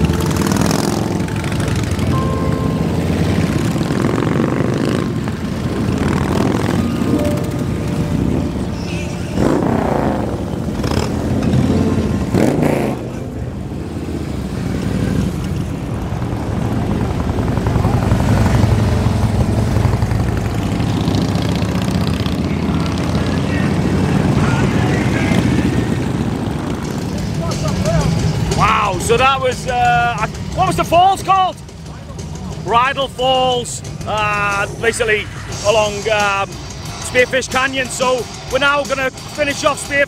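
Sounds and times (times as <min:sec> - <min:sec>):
motorcycles riding past: 0:00.0 - 0:30.8.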